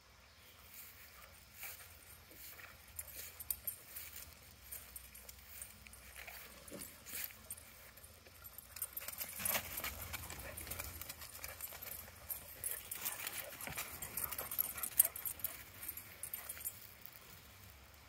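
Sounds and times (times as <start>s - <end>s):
dog paws pattering on grass: 0.6s - 18.0s.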